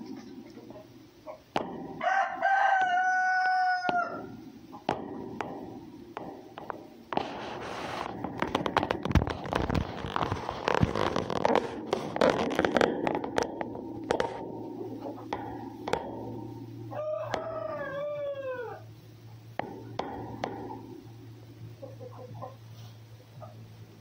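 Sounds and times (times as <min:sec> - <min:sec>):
rooster crowing: 0:02.0 - 0:04.4, 0:16.9 - 0:18.9
dense crackling and rustling: 0:07.1 - 0:16.0.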